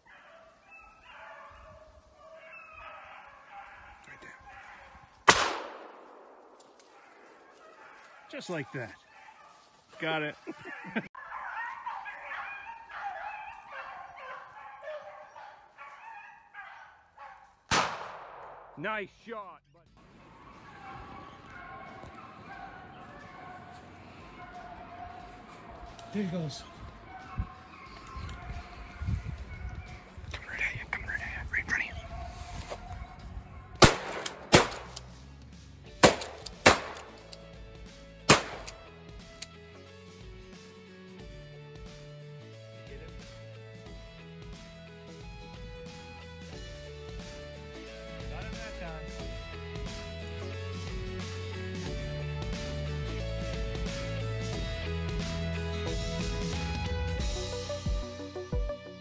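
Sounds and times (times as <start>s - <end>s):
pack of dogs baying: 0.0s - 5.2s, 6.8s - 17.7s, 20.0s - 35.0s, 43.1s - 57.7s
shotgun blasts: 5.2s - 7.2s, 17.7s - 18.8s, 33.8s - 35.0s, 36.0s - 37.2s, 38.3s - 38.8s.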